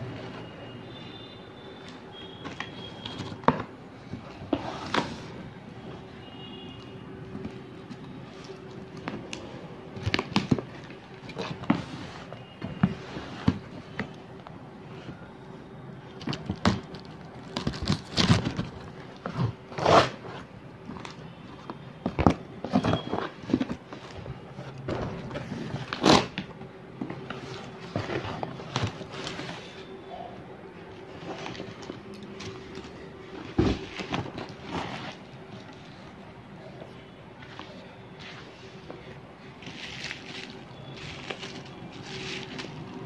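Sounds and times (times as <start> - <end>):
cardboard rustling: 16.1 - 29.9, 30.8 - 36.2, 37.4 - 43.0.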